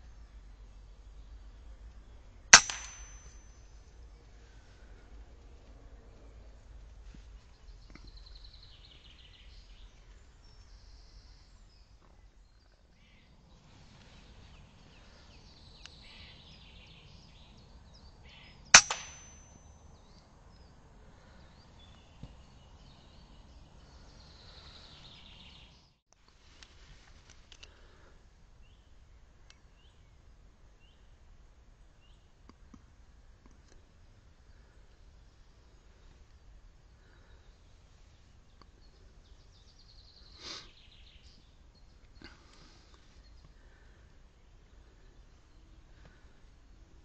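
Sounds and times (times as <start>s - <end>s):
air rifle shot: 2.5s - 3.3s, 18.8s - 19.4s
faint bird calls: 7.4s - 18.8s.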